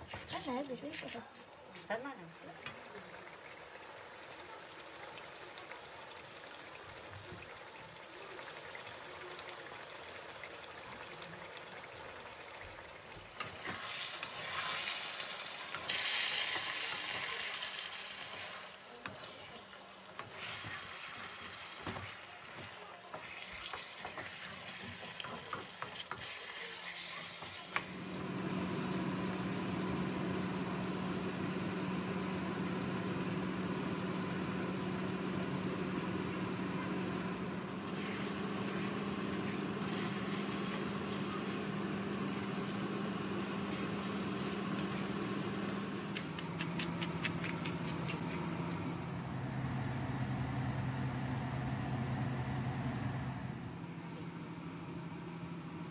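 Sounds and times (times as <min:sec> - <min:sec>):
food frying in a wok: 0:00.3 - 0:47.5
steady mechanical hum: 0:18.2 - 0:55.9.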